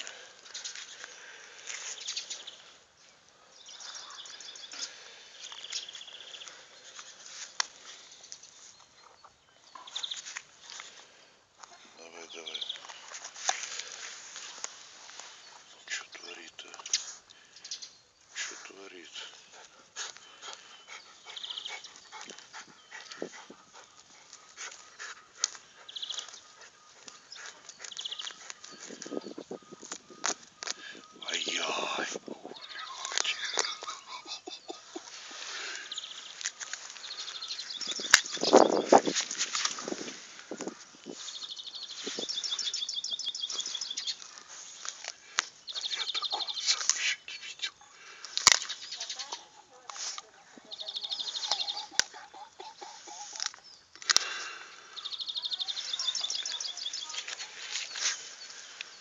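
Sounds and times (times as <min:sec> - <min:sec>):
dog sniffing: 0:19.2 - 0:28.9.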